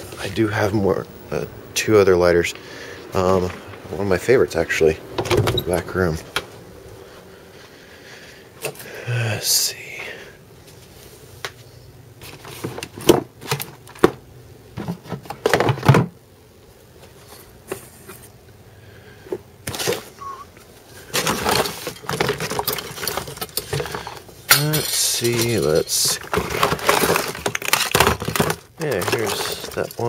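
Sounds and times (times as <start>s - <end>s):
rustling and rattling objects: 10.6s - 16.2s, 16.9s - 18.4s, 19.2s - 30.0s
objects knocking and clicking: 21.1s - 30.0s.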